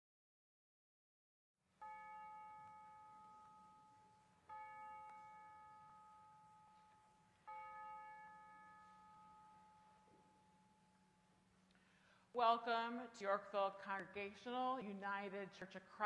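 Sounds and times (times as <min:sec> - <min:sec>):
bell ringing: 0:01.8 - 0:11.5.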